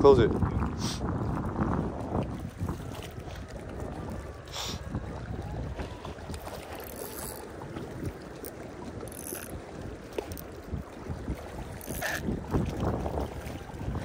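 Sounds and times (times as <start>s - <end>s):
lake water lapping: 0.0s - 14.0s
wind rumbling on microphone: 0.0s - 14.0s
water splashing hiss: 11.8s - 12.2s.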